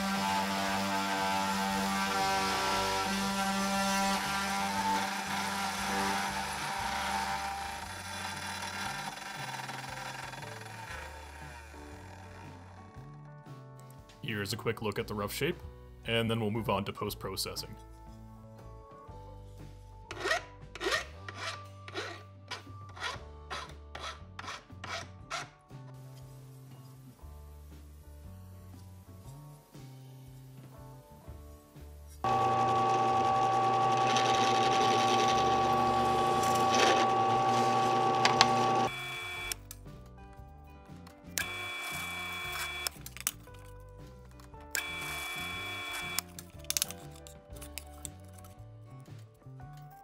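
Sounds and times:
end mill cutting aluminium: 4.0s - 12.7s, 32.2s - 39.0s
file rasping on metal: 20.1s - 25.6s
cnc router spindle whine: 32.3s - 39.4s.

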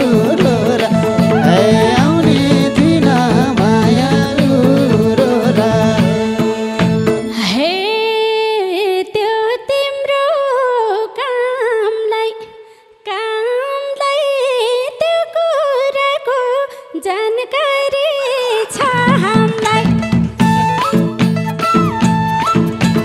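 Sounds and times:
woman singing into microphone: 0.0s - 20.0s
band instruments playing: 0.5s - 7.4s.

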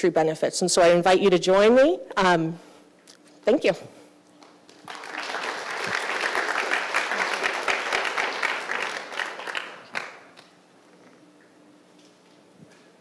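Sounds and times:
audience applauding: 4.7s - 10.5s.

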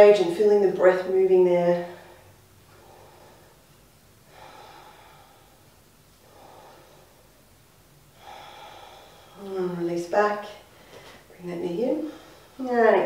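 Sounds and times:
woman breathing slowly: 1.8s - 9.8s, 10.6s - 11.3s, 12.0s - 12.7s.

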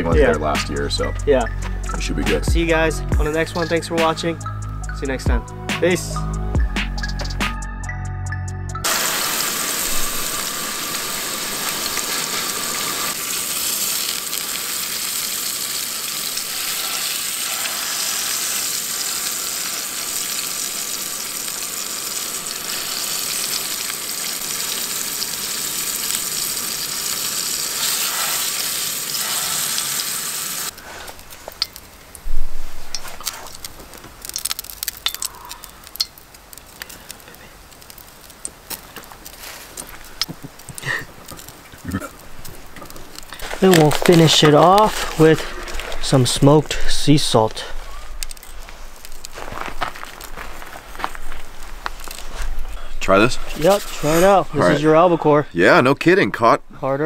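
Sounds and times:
fish searing in frying pan: 8.8s - 45.8s.

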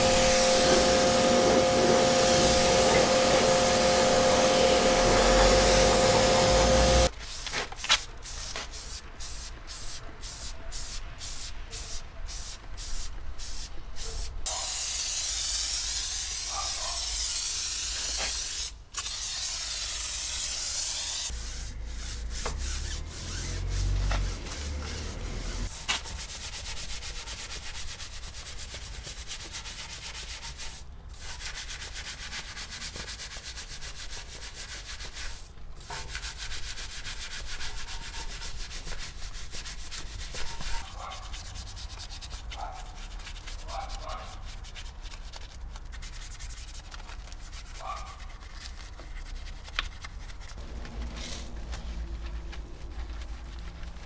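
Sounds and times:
spray hissing: 0.0s - 7.1s, 8.3s - 25.7s
scrubbing car bodywork: 19.5s - 54.0s.

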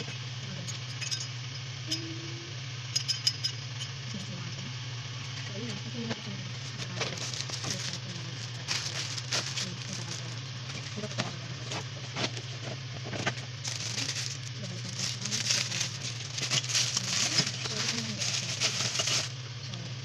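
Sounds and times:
low hum: 0.0s - 20.0s
plastic and cardboard rustling: 5.6s - 19.4s.

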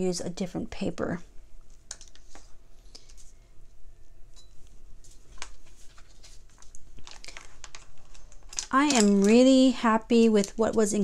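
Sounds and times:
pens and paper handled on desk: 1.7s - 3.4s, 4.3s - 11.0s.

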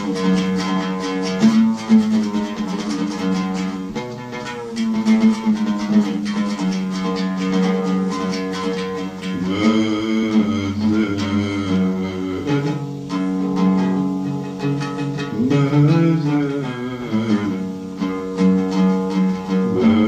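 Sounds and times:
oud plucked melody: 0.0s - 20.0s
man singing or humming: 9.1s - 13.2s, 14.9s - 17.8s, 19.4s - 20.0s.

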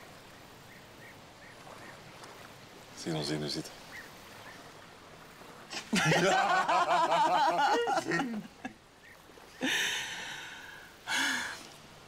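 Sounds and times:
woman laughing: 5.9s - 8.7s
man laughing: 5.9s - 8.8s.

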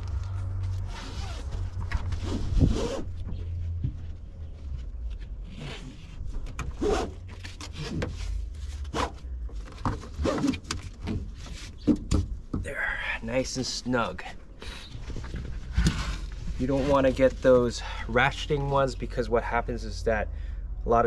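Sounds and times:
strap swishing through buckle: 0.8s - 3.2s.

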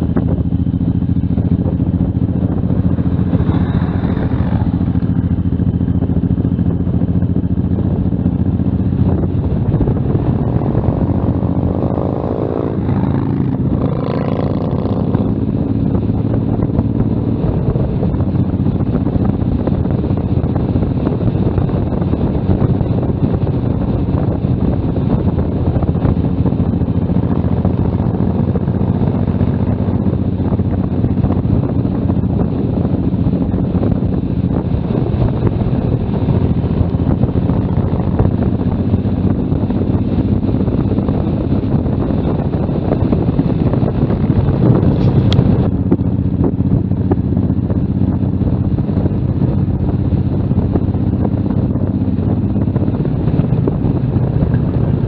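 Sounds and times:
motorcycle engine running: 0.0s - 55.0s
wind rumble on microphone: 0.0s - 55.0s.

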